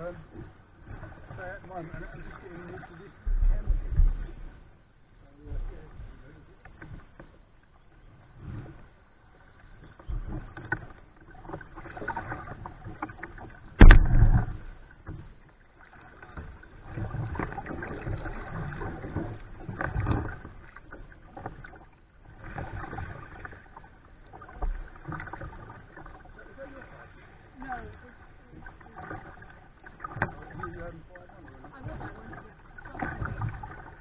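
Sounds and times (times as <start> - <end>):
paddle strokes splashing water: 0.0 - 34.0
loud knock: 13.8 - 14.5.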